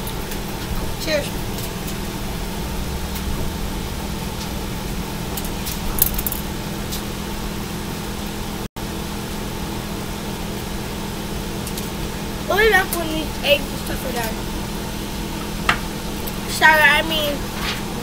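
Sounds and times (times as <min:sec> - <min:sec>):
low mechanical hum: 0:00.0 - 0:18.0.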